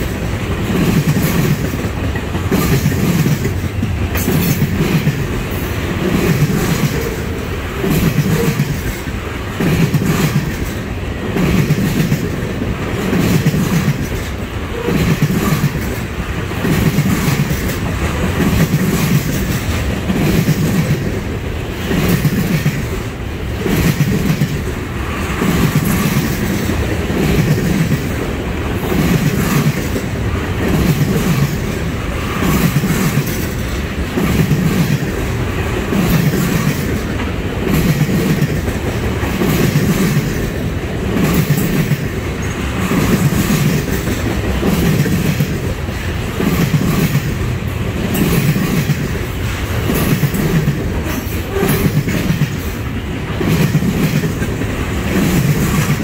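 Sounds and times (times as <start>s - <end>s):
rhythmic clickety-clack: 0.0s - 56.0s
train wheels rumbling on rails: 0.0s - 56.0s.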